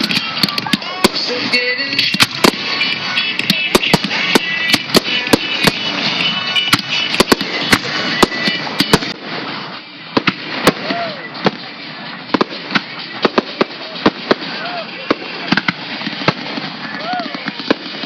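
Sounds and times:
fireworks bangs: 0.0s - 18.0s
music over loudspeakers: 0.0s - 18.0s.

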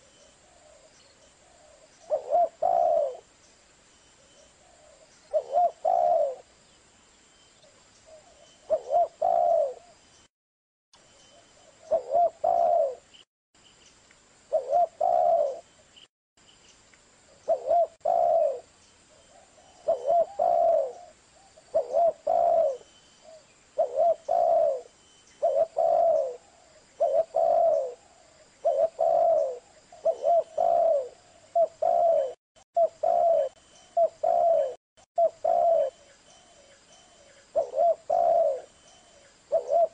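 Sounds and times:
dove cooing: 0.0s - 3.3s, 4.6s - 6.5s, 8.1s - 10.0s, 11.7s - 13.1s, 14.5s - 15.7s, 17.5s - 18.7s, 19.3s - 39.9s.

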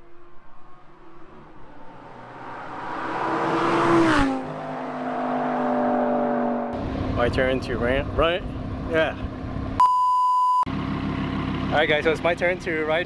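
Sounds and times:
sports car passing at speed: 0.0s - 7.2s.

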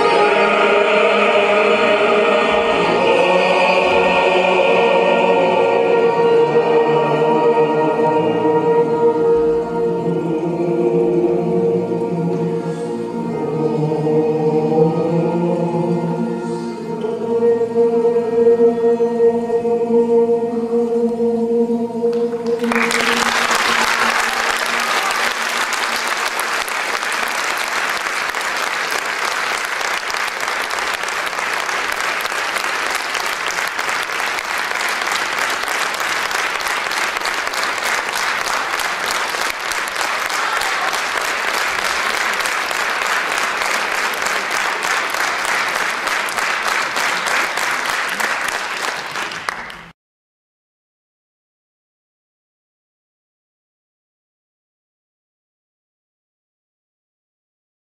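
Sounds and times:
choir holding a chord: 0.0s - 48.8s
audience applause: 22.4s - 49.9s.

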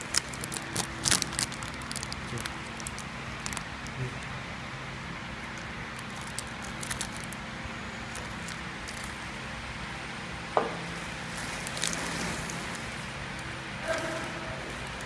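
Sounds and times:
plastic wrappers crinkling: 0.0s - 4.4s, 5.4s - 9.4s, 11.2s - 13.4s
packaging machine humming: 0.0s - 15.0s.

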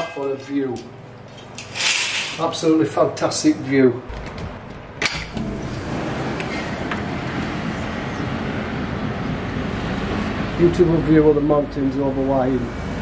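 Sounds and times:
street traffic rumble: 4.1s - 13.0s.

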